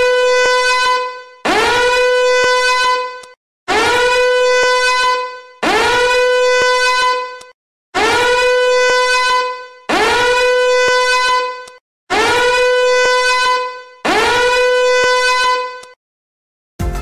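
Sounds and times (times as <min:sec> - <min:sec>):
horn-like alarm ringtone: 0:00.0 - 0:16.0.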